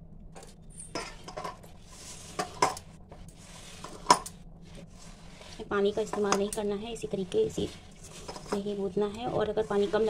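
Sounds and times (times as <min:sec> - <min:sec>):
hand kneading dough: 0:03.1 - 0:10.0.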